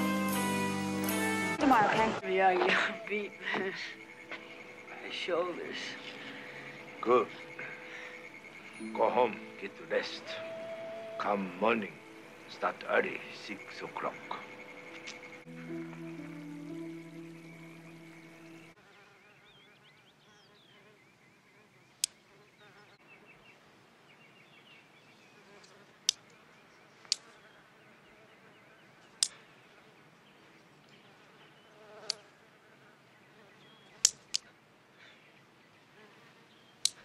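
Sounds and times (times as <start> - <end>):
housefly buzzing: 12.0 - 21.0, 31.0 - 34.4.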